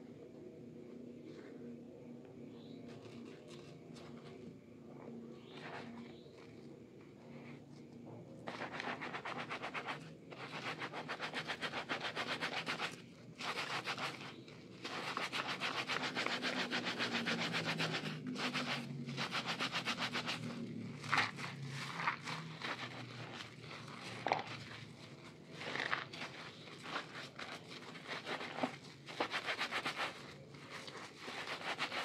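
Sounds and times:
sponges squishing in soap lather: 0:10.8 - 0:32.0.

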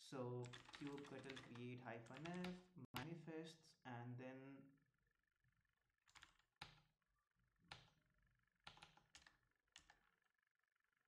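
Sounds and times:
keyboard keystrokes: 0:00.4 - 0:03.1, 0:06.1 - 0:06.8, 0:07.7 - 0:07.9, 0:08.7 - 0:10.0.

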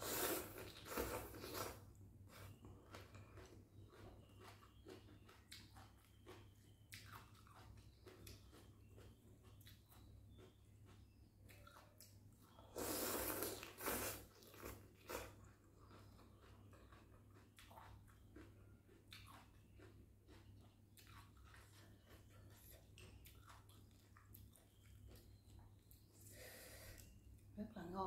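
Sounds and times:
person slurping noodles: 0:00.0 - 0:01.8, 0:12.7 - 0:15.2
chewing with wet mouth clicks: 0:00.6 - 0:26.2.

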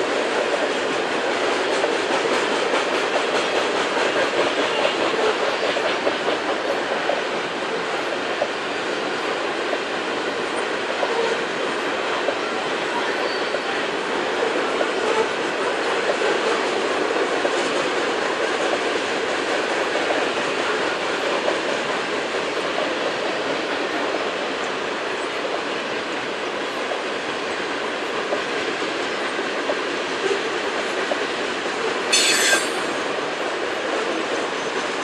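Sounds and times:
freight train wheels on rails: 0:00.0 - 0:35.0
high-pitched wheel squeal: 0:32.1 - 0:32.9.

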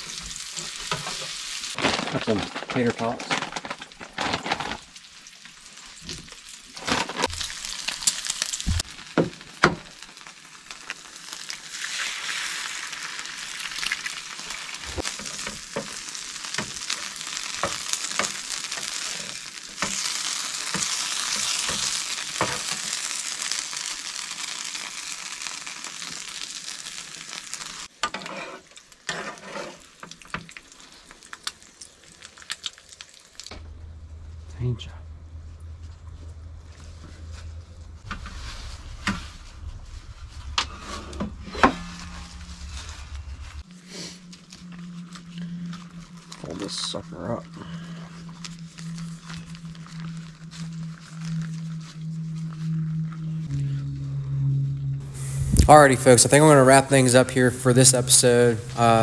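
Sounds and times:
food sizzling in a skillet: 0:00.0 - 0:01.8, 0:05.0 - 0:33.5
spatula scraping a pan: 0:28.0 - 0:30.0.

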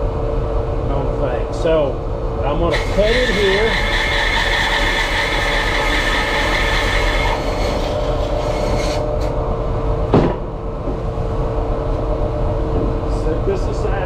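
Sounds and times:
bandsaw running: 0:02.7 - 0:09.3
saw blade cutting wood: 0:02.7 - 0:09.3.

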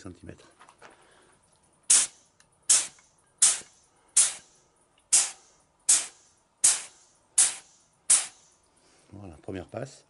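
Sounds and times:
paint spray gun hissing bursts: 0:01.9 - 0:08.5.

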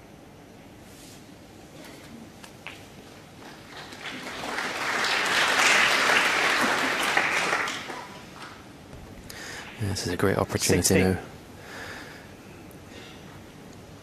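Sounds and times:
audience applauding: 0:03.1 - 0:08.7.

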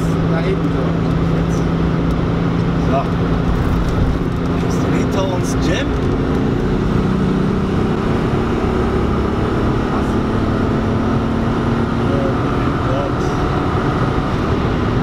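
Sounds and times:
car engine droning: 0:00.0 - 0:15.0
tyre and wind noise: 0:01.8 - 0:08.3.

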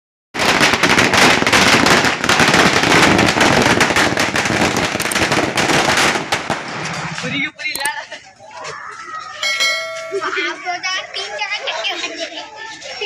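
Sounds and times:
firecrackers banging rapidly: 0:00.4 - 0:07.9.

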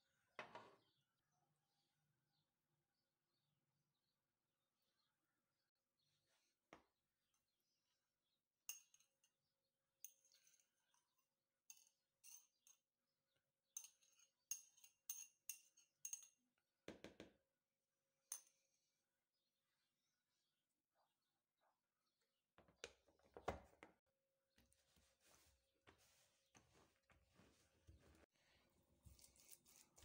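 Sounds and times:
metal spoon clinking on bowl: 0:11.7 - 0:12.8, 0:13.8 - 0:16.4.

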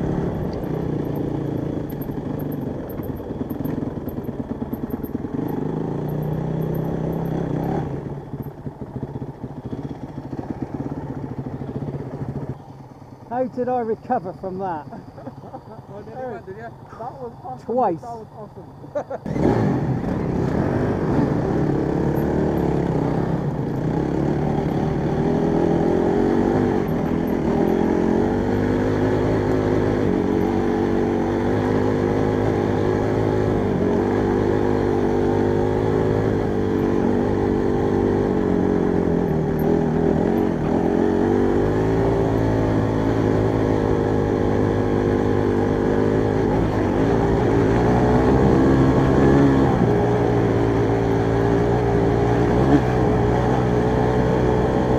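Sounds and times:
motorcycle engine revving: 0:00.0 - 0:54.9.

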